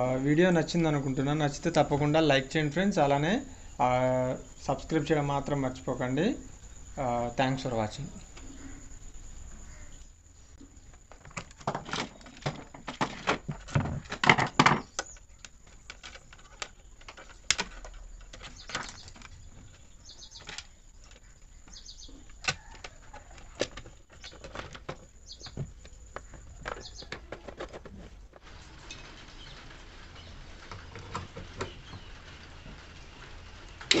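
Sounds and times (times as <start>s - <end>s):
plastic parts clicking and rattling: 10.8s - 29.1s.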